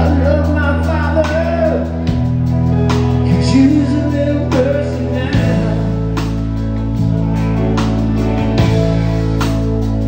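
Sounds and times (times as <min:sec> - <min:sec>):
man singing lead vocal: 0:00.0 - 0:02.2, 0:03.1 - 0:06.5
live rock band playing: 0:00.0 - 0:10.0.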